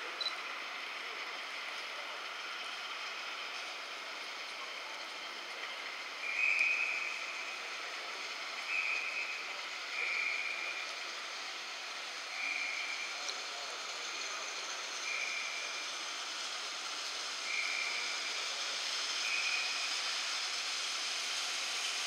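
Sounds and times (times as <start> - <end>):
train wheels squealing: 19.2 - 20.1.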